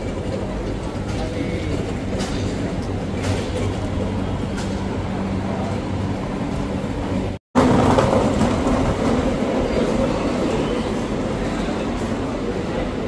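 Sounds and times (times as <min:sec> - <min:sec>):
indoor shopping arcade hubbub: 0:00.0 - 0:05.7
street traffic: 0:00.0 - 0:13.0.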